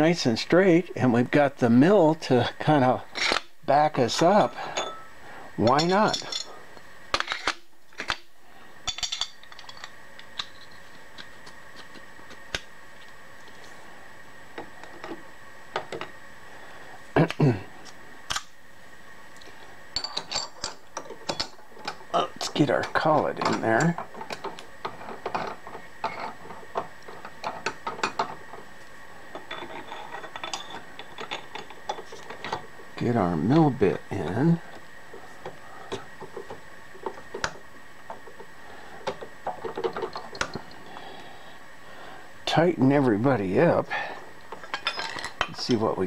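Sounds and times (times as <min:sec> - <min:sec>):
faint high-pitched hum: 0:00.0 - 0:46.0
metal tools clinking: 0:04.4 - 0:06.6, 0:08.9 - 0:10.8, 0:29.4 - 0:32.6, 0:44.6 - 0:45.5.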